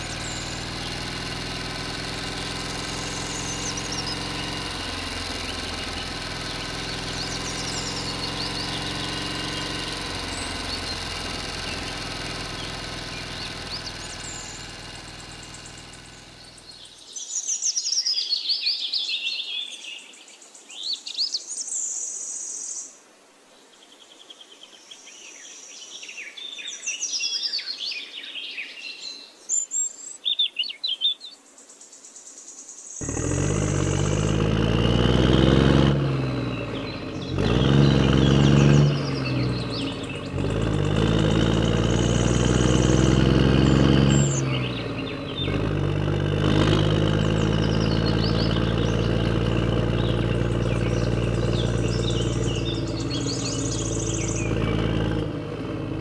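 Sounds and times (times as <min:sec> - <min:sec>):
engine running with low throb: 0:00.0 - 0:17.0, 0:33.0 - 0:56.0
birds chirping: 0:00.0 - 0:21.7, 0:33.0 - 0:56.0.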